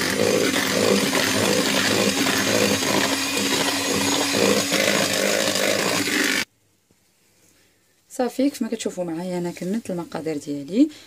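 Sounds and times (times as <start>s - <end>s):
electric hand mixer running: 0.0s - 6.5s.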